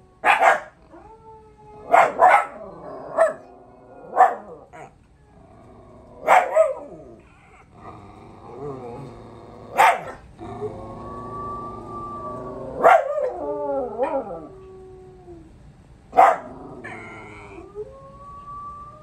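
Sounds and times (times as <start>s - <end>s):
wolf howl on television: 0.0s - 4.8s, 10.4s - 15.5s, 16.4s - 19.0s
dog howling: 0.0s - 7.2s, 8.6s - 15.5s, 16.2s - 19.0s
dog barking: 0.2s - 0.8s, 1.9s - 2.6s, 3.2s - 3.4s, 4.1s - 4.6s, 6.2s - 6.8s, 9.7s - 10.2s, 12.8s - 13.3s, 16.2s - 16.5s.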